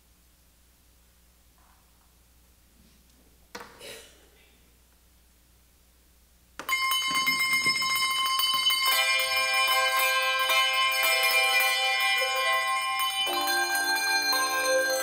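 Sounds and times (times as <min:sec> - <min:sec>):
handbell choir ringing: 0:06.7 - 0:15.0.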